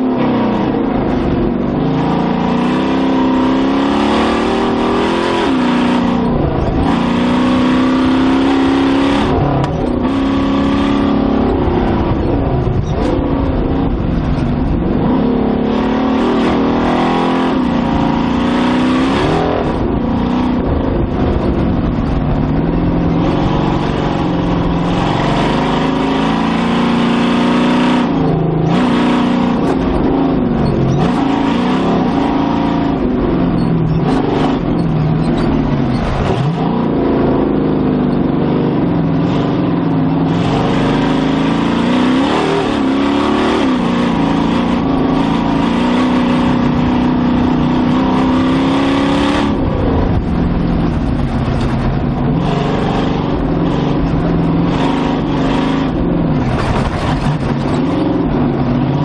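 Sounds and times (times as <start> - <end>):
engine revving hard: 0.0 - 14.0, 14.9 - 22.0, 22.6 - 59.0.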